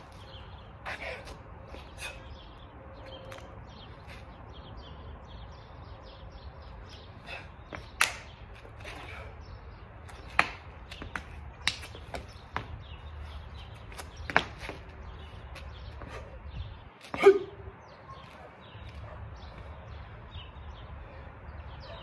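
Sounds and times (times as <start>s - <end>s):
sharp snaps and slaps: 7.8s - 8.4s, 10.2s - 12.0s.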